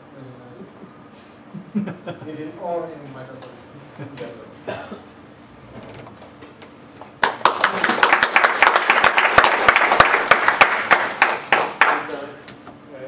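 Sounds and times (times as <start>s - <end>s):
audience applauding: 7.0s - 12.3s.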